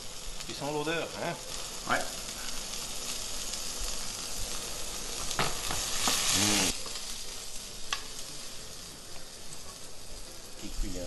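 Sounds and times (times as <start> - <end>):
mushrooms sizzling in a frying pan: 0.0 - 11.0.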